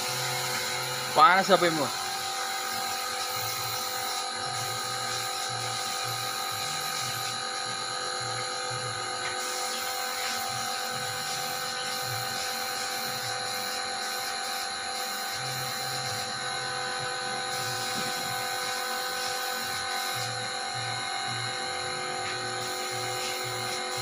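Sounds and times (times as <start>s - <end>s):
low irregular pulsing: 0.0s - 24.0s
mechanical whine: 0.0s - 24.0s.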